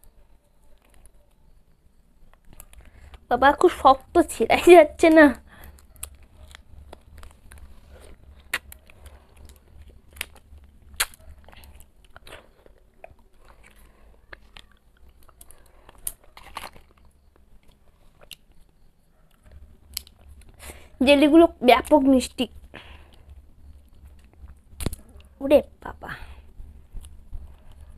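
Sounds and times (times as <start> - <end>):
person chewing: 5.4 - 20.9.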